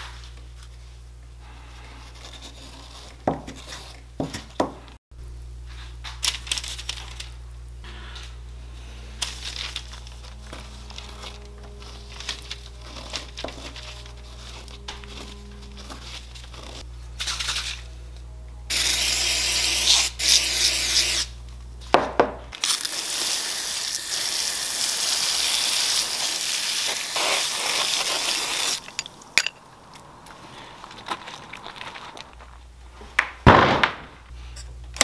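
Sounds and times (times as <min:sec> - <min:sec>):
paper towel rubbing metal: 0:09.4 - 0:16.8, 0:25.9 - 0:28.8
water spraying on metal: 0:22.7 - 0:28.8.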